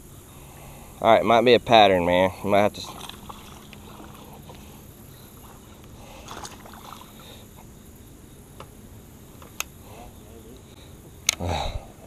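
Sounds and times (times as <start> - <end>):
faint water splashing: 2.2 - 8.1.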